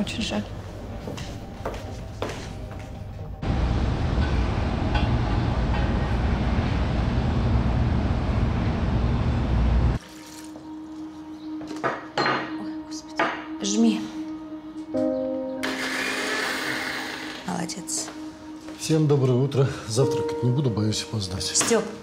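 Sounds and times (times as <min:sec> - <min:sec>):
steady hum: 0:03.4 - 0:10.0.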